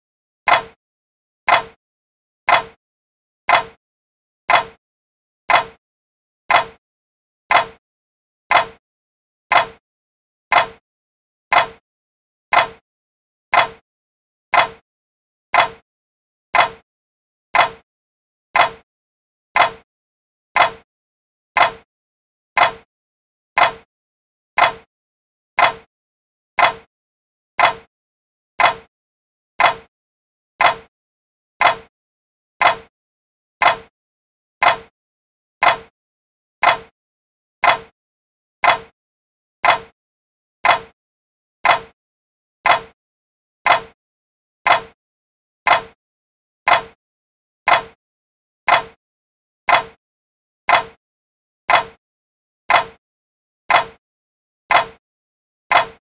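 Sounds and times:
clock ticking: 0:00.5 - 0:00.8, 0:01.5 - 0:01.8, 0:02.5 - 0:02.8, 0:03.5 - 0:03.8, 0:04.5 - 0:04.8, 0:05.5 - 0:05.8, 0:06.5 - 0:06.8, 0:07.5 - 0:07.8, 0:08.5 - 0:08.8, 0:09.5 - 0:09.8, 0:10.5 - 0:10.8, 0:11.5 - 0:11.8, 0:12.5 - 0:12.8, 0:13.5 - 0:13.8, 0:14.5 - 0:14.8, 0:15.6 - 0:15.8, 0:16.6 - 0:16.8, 0:17.6 - 0:17.8, 0:18.6 - 0:18.8, 0:19.6 - 0:19.8, 0:20.6 - 0:20.8, 0:21.6 - 0:21.9, 0:22.6 - 0:22.9, 0:23.6 - 0:23.9, 0:24.6 - 0:24.9, 0:25.6 - 0:25.9, 0:26.6 - 0:26.9, 0:27.6 - 0:27.9, 0:28.6 - 0:28.9, 0:29.6 - 0:29.9, 0:30.6 - 0:30.9, 0:31.6 - 0:31.9, 0:32.6 - 0:32.9, 0:33.6 - 0:33.9, 0:34.6 - 0:34.9, 0:35.6 - 0:35.9, 0:36.6 - 0:36.9, 0:37.6 - 0:37.9, 0:38.6 - 0:39.0, 0:39.6 - 0:40.0, 0:40.6 - 0:41.0, 0:41.6 - 0:42.0, 0:42.6 - 0:43.0, 0:43.7 - 0:44.0, 0:44.7 - 0:45.0, 0:45.7 - 0:46.0, 0:46.7 - 0:47.0, 0:47.7 - 0:48.0, 0:48.7 - 0:49.0, 0:49.7 - 0:50.0, 0:50.7 - 0:51.0, 0:51.7 - 0:52.0, 0:52.7 - 0:53.0, 0:53.7 - 0:54.0, 0:54.7 - 0:55.0, 0:55.7 - 0:56.0.

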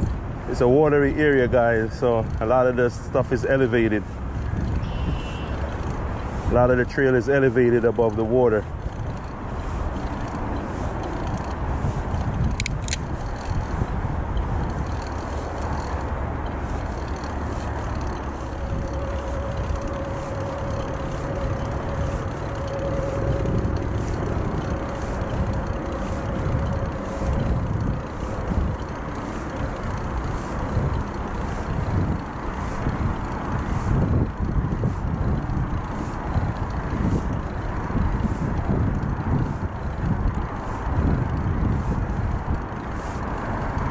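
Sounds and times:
bicycle tyre and frame noise: 0:00.0 - 0:43.9
wind rumbling on microphone: 0:00.0 - 0:43.9
faint steady whine: 0:03.6 - 0:35.1.

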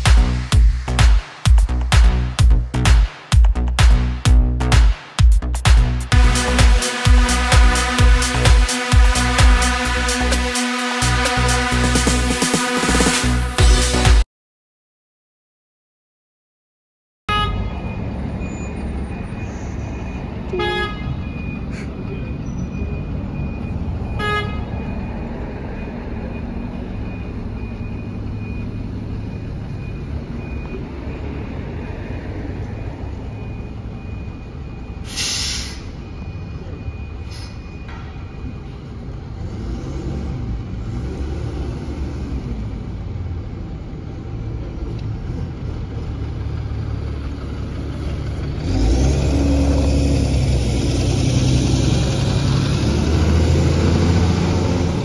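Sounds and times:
bus engines rumbling: 0:00.0 - 0:14.2, 0:17.3 - 0:55.0
bus horn toots: 0:06.1 - 0:14.2, 0:17.3 - 0:17.9, 0:20.5 - 0:21.9, 0:24.2 - 0:24.8
air brake hiss: 0:35.0 - 0:36.0, 0:37.2 - 0:37.7.

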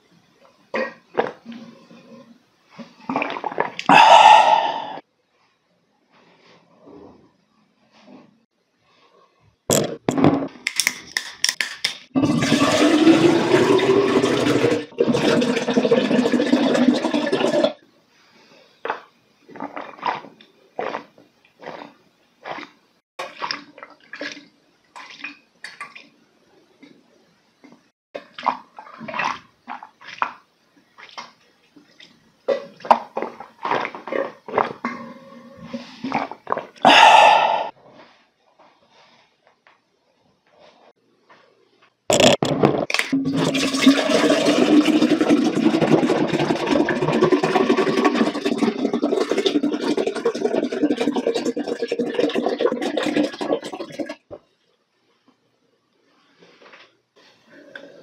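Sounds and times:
person gulping a drink: 0:03.0 - 0:05.0, 0:12.2 - 0:17.8, 0:18.8 - 0:26.1, 0:28.2 - 0:30.4, 0:31.0 - 0:37.7, 0:42.1 - 0:54.3
drink pouring into a glass: 0:43.2 - 0:54.2.

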